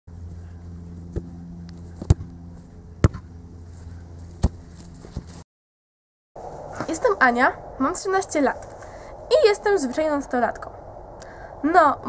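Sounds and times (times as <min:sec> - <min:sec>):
steady low hum: 0:00.1 - 0:05.4, 0:06.4 - 0:12.0
football kicked on grass: 0:01.1 - 0:05.4.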